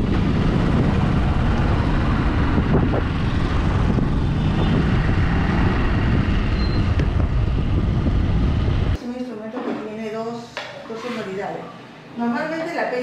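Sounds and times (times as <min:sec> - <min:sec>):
motorcycle engine rumble: 0:00.0 - 0:09.0
wind noise on microphone: 0:00.0 - 0:09.0.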